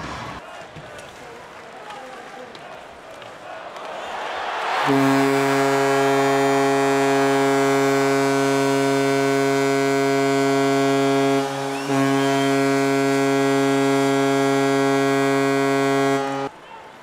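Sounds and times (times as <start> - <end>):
low goal horn: 4.7 - 16.5.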